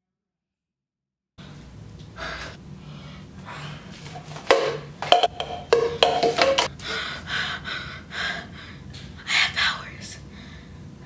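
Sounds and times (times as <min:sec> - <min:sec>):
person breathing hard: 0:02.2 - 0:04.1, 0:06.7 - 0:08.9, 0:10.3 - 0:10.8.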